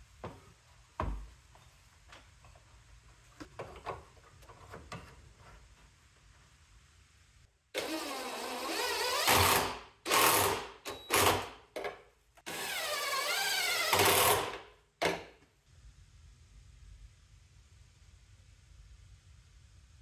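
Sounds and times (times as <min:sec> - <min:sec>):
power tool motor whirring: 0:12.5 - 0:14.6.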